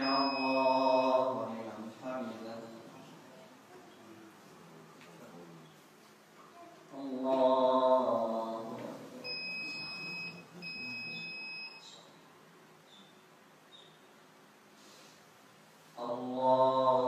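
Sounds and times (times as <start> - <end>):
electronic beeps: 0.0 - 1.2, 9.3 - 12.1
man chanting prayer: 0.0 - 3.0, 6.9 - 9.3, 16.0 - 17.0.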